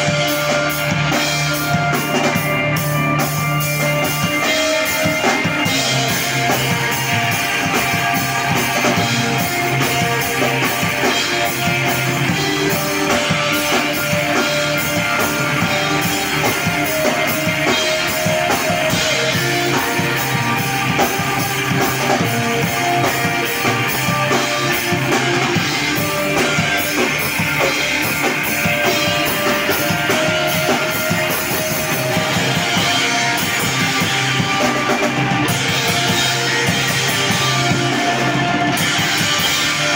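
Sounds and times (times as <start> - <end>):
bass guitar: 0.0 - 39.9
distorted electric guitars: 0.0 - 39.9
drum kit: 0.0 - 39.9.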